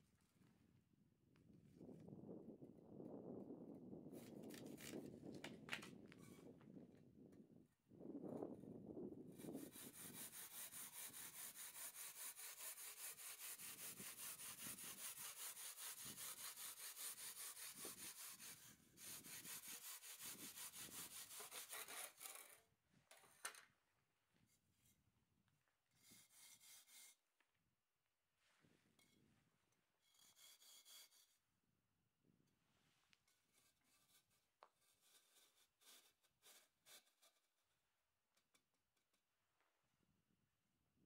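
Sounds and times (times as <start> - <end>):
hand saw cutting brick: 9.4 - 22.6.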